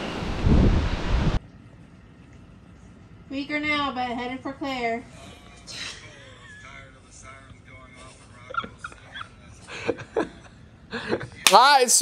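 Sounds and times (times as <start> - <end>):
wind buffeting microphone: 0.0 - 1.4.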